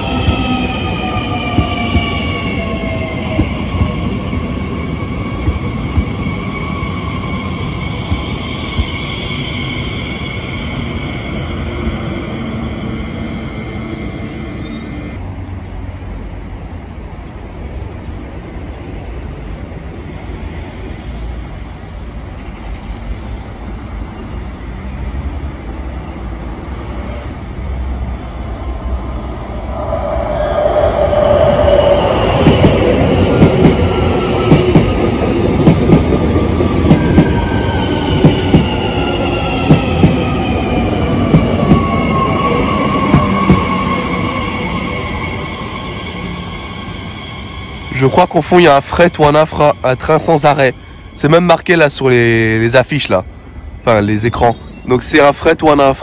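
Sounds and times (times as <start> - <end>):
electric train pulling away: 0.0 - 15.2, 27.6 - 52.0.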